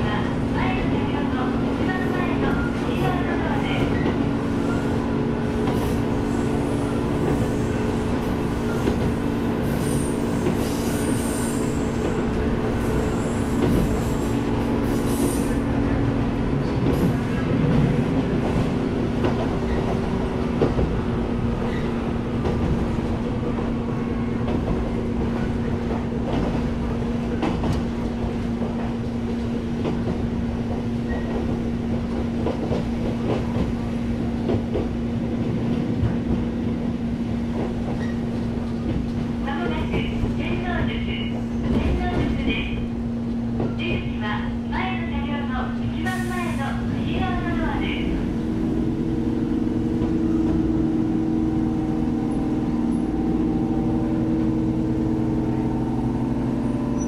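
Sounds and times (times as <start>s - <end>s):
train motor and gear hum: 0.0s - 57.0s.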